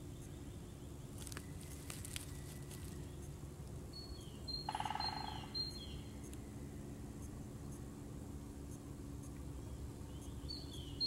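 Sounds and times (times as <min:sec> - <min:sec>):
small songbird singing: 0:00.0 - 0:07.8, 0:09.2 - 0:11.0
low background hum: 0:00.0 - 0:11.0.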